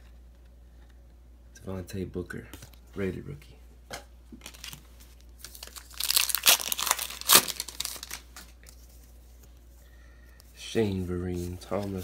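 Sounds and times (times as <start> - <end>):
wrapper tearing and crinkling: 4.4 - 8.7.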